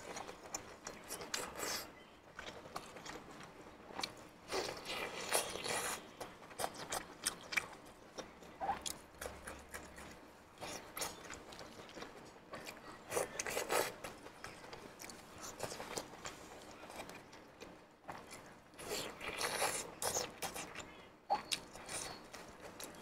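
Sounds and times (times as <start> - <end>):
close-up chewing and biting: 0.0 - 23.0.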